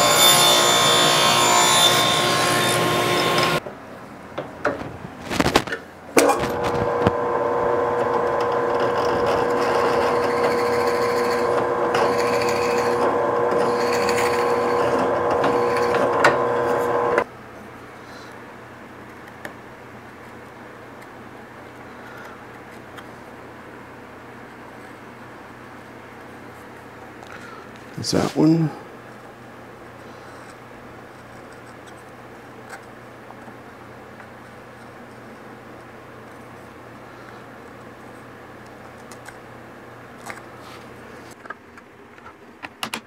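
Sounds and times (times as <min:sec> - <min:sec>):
table saw running: 0:00.0 - 0:03.6, 0:06.4 - 0:17.2.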